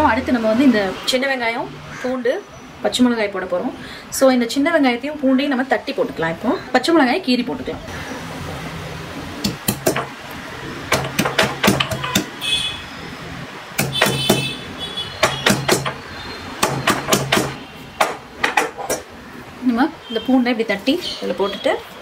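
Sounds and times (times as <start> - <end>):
stone pestle pounding in mortar: 9.5 - 10.2, 10.9 - 12.4, 13.8 - 14.6, 15.2 - 19.1.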